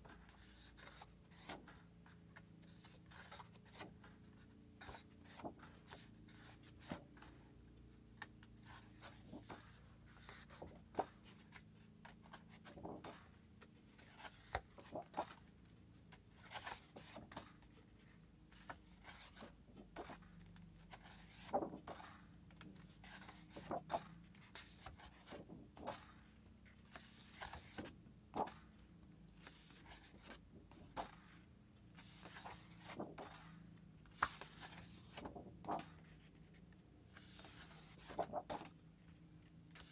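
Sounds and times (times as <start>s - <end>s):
paper rustling: 8.2s - 15.6s, 16.2s - 39.9s
paper flicking and slapping: 21.0s - 26.2s, 26.9s - 28.8s, 32.0s - 36.2s, 37.1s - 38.8s.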